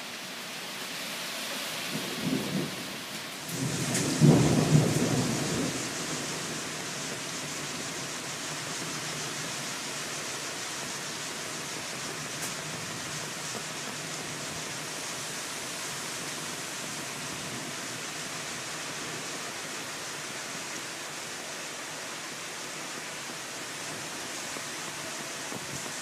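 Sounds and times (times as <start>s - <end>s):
rain hissing: 0.0s - 26.0s
thunder rumbling: 3.5s - 7.7s.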